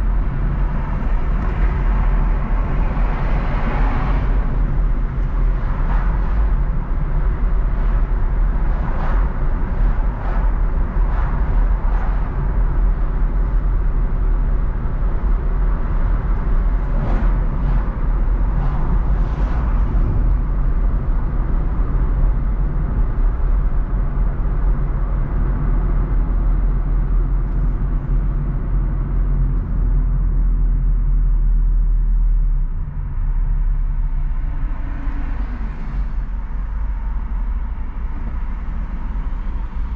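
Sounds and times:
car engine and tyre rumble: 0.0 - 39.9.

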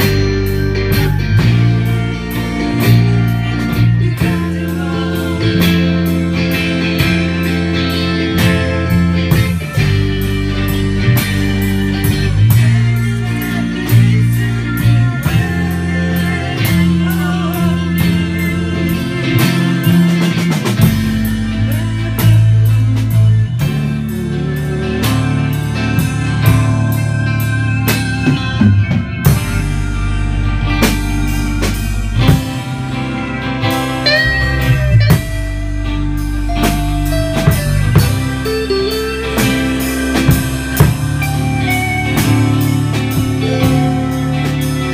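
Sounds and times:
rock band playing: 0.0 - 44.9.

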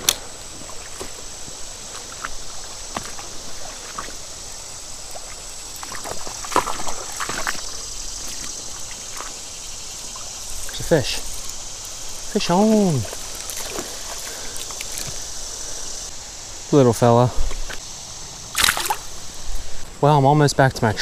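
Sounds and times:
river water over rocks: 0.0 - 15.4.

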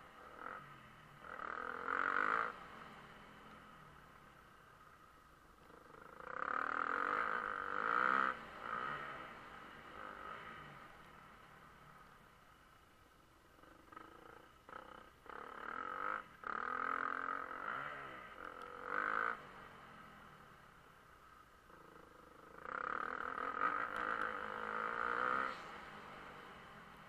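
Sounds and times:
motocross bike engine revving: 0.0 - 3.3, 5.6 - 11.0, 13.8 - 20.5, 21.7 - 27.0.

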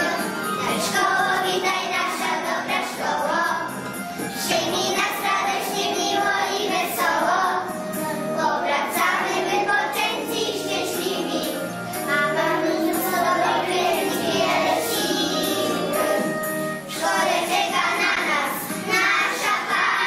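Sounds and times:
children singing in chorus: 0.0 - 3.6, 4.4 - 20.0
musical accompaniment: 0.0 - 20.0.

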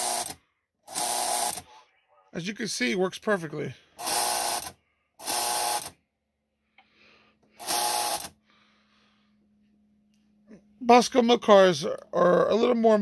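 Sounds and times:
electric mechanism buzzing: 0.0 - 1.6, 4.0 - 6.0, 7.6 - 8.4.

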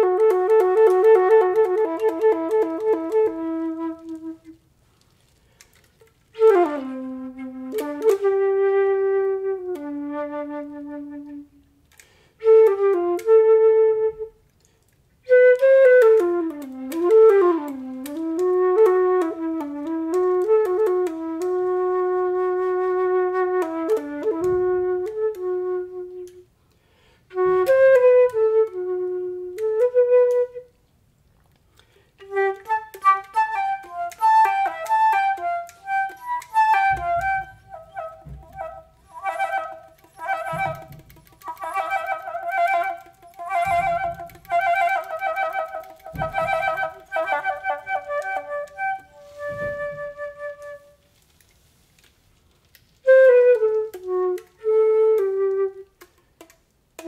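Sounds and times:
flute playing slow melody: 0.0 - 4.7, 6.3 - 14.6, 15.2 - 26.6, 27.3 - 30.8, 32.2 - 51.2, 53.0 - 56.2.

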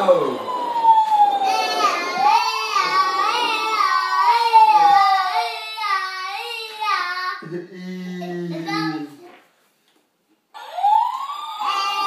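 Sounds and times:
toy fire engine siren: 0.0 - 5.6, 10.6 - 12.0.

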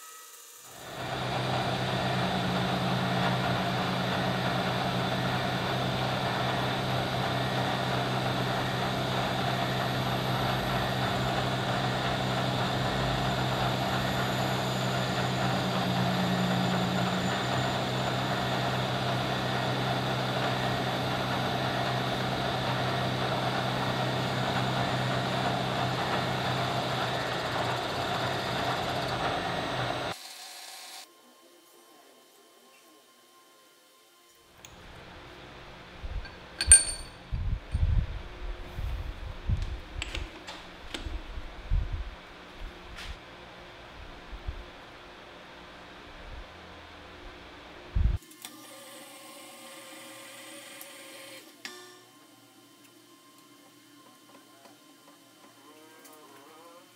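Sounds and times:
milling machine motor hum: 0.4 - 31.1.

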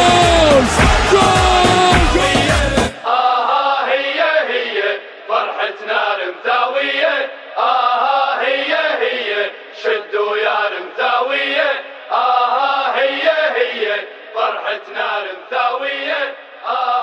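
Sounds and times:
music: 0.0 - 3.0
crowd chanting: 0.0 - 17.0.

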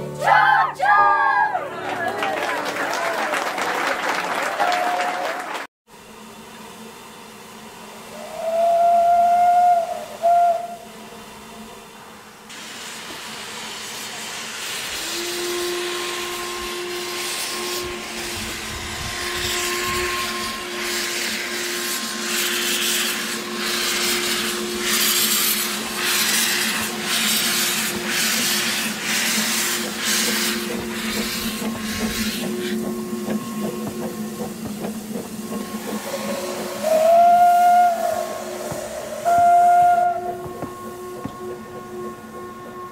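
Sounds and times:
steam hissing from drain cocks: 6.0 - 42.9
steam locomotive whistle: 7.7 - 42.9
locomotive exhaust beats: 14.6 - 42.9.

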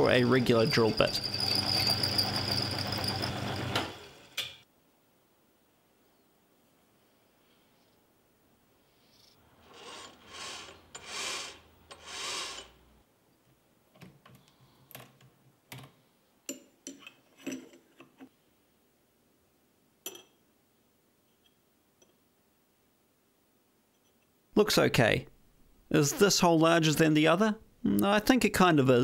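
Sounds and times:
drill cutting into metal: 0.4 - 4.2, 9.7 - 12.8.

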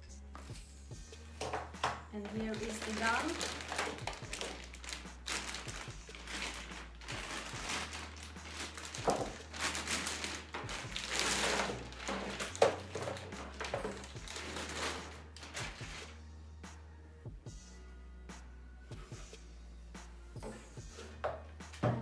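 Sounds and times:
plastic bag crinkling: 2.2 - 16.2.

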